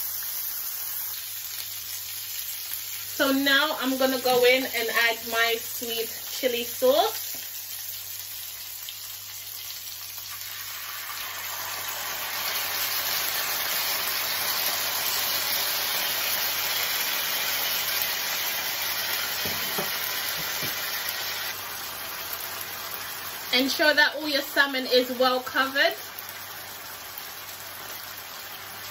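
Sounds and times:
fish sizzling in grill pan: 0:00.0 - 0:28.9
sauce poured into hot pan: 0:07.2 - 0:23.5.

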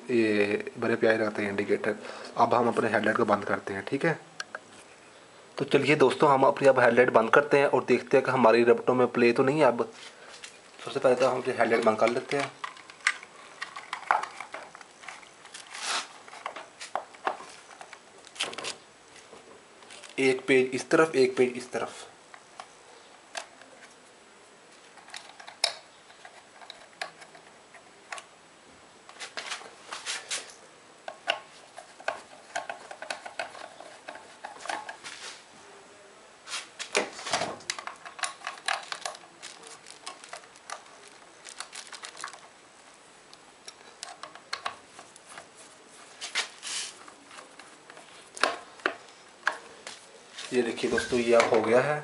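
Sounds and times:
small clicks and rattles: 0:11.7 - 0:15.7, 0:24.9 - 0:28.3, 0:31.1 - 0:35.0, 0:37.6 - 0:42.6.

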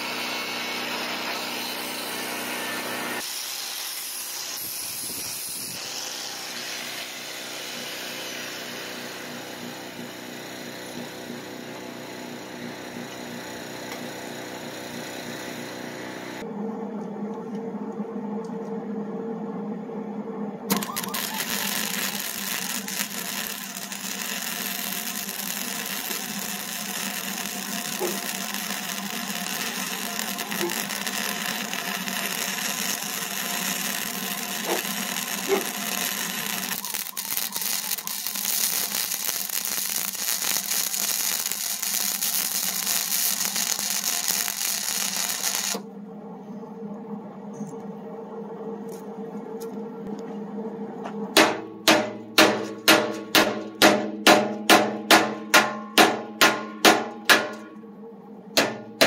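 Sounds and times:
steady hum: 0:08.5 - 0:59.0
welding arc crackling: 0:20.7 - 0:45.8.

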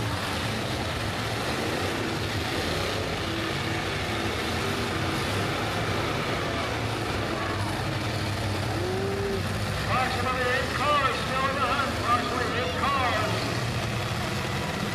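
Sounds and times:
several car engines running: 0:00.0 - 0:14.9.

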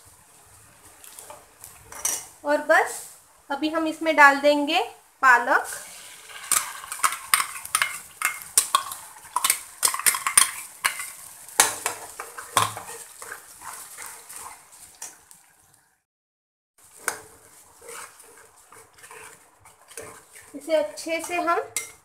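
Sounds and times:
light sizzle: 0:00.0 - 0:16.1, 0:16.8 - 0:22.0
spatula scraping pan: 0:05.6 - 0:15.4, 0:16.8 - 0:22.0.

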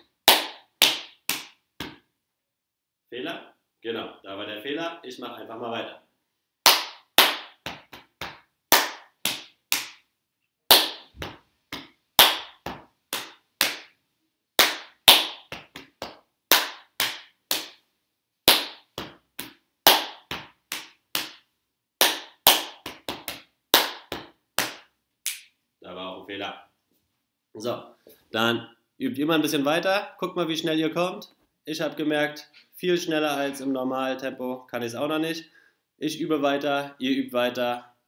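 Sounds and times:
hand claps: 0:00.2 - 0:02.0, 0:06.6 - 0:10.1, 0:10.7 - 0:14.0, 0:14.6 - 0:17.9, 0:18.5 - 0:25.5
slaps on chest and thighs: 0:00.2 - 0:02.1, 0:06.6 - 0:10.1, 0:10.7 - 0:14.0, 0:14.6 - 0:17.8, 0:18.5 - 0:25.5.

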